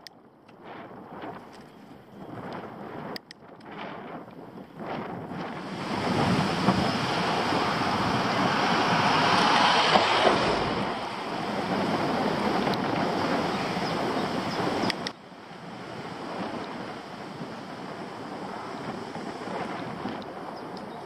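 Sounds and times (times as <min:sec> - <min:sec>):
wind noise on microphone: 0:00.0 - 0:21.0
minibus passing: 0:05.6 - 0:21.0.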